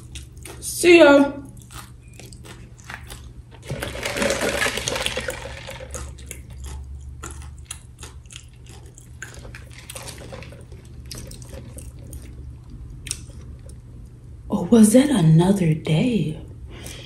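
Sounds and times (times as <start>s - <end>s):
wet chewing and mouth clicks: 0.0s - 0.8s, 1.4s - 14.2s.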